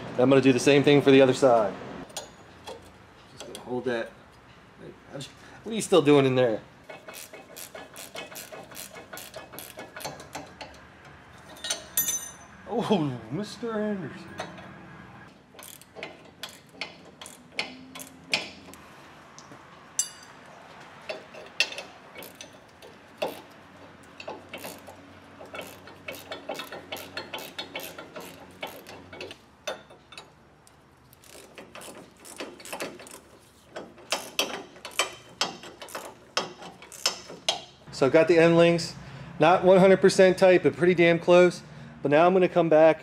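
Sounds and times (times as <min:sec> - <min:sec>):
hand ratchet clicking: 0:06.9 - 0:11.8, 0:15.6 - 0:18.8, 0:21.1 - 0:30.3, 0:31.1 - 0:37.7.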